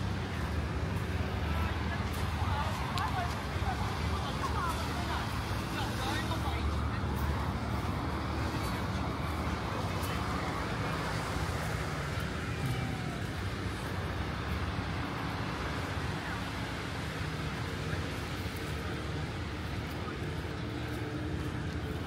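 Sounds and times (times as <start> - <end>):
traffic engine hum: 0.0 - 22.0.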